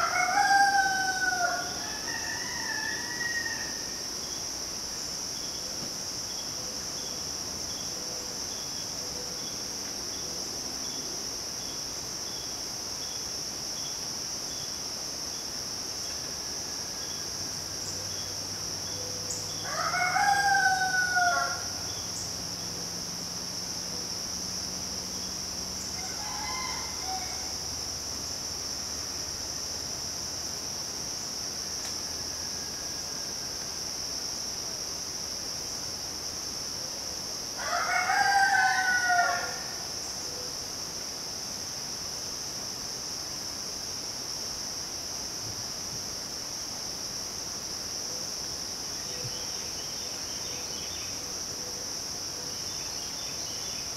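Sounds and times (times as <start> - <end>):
roosters crowing: 0.0 - 4.0, 19.6 - 21.8, 25.9 - 27.7, 37.6 - 39.8
insects droning: 0.0 - 53.9.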